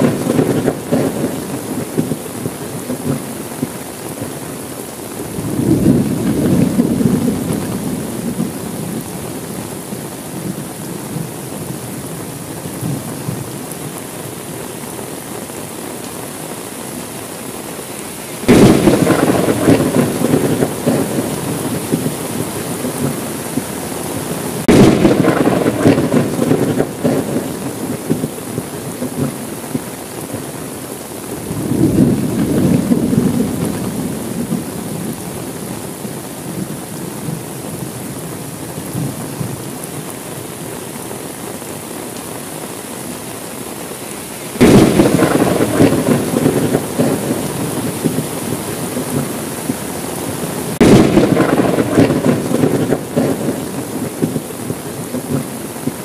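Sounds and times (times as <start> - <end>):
thunder rumble: 0.0 - 4.4, 5.3 - 13.5, 18.4 - 30.5, 31.4 - 35.6, 44.5 - 56.0
thunderclaps: 0.0 - 4.4, 5.3 - 9.1, 18.4 - 30.4, 31.4 - 35.2, 44.6 - 49.9, 50.7 - 56.0
steady rain: 0.0 - 56.0.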